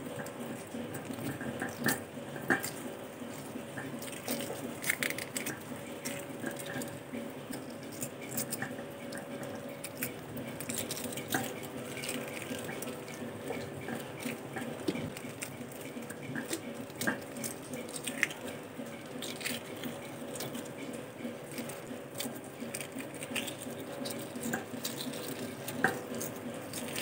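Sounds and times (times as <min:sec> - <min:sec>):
eggshell cracking: 0:04.0 - 0:06.9, 0:09.5 - 0:18.4, 0:21.5 - 0:27.0.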